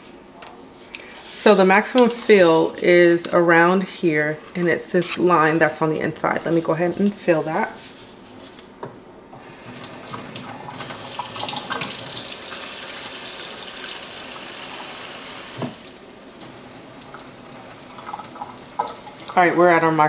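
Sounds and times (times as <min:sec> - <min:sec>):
faucet water filling plastic tank: 0:09.4 - 0:19.9.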